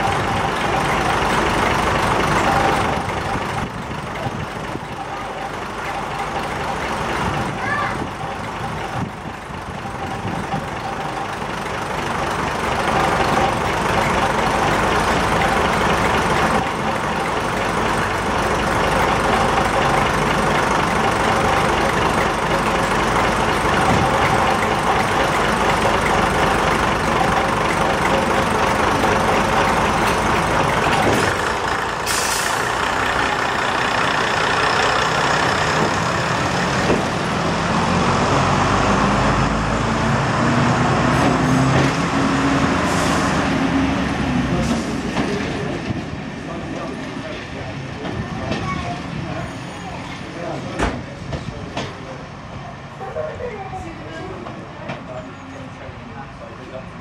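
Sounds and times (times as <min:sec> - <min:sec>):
railcar diesel engines running: 0:00.0 - 0:57.0
air hiss: 0:32.0 - 0:32.6.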